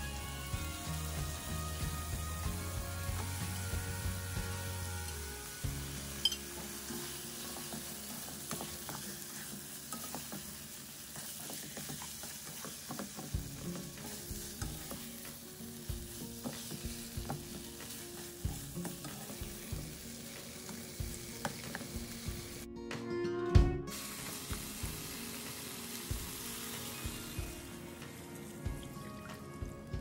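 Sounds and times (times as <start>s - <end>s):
chicken sizzling in oil: 0.0s - 22.7s, 23.9s - 30.0s
spatula scraping a wok: 5.5s - 21.8s.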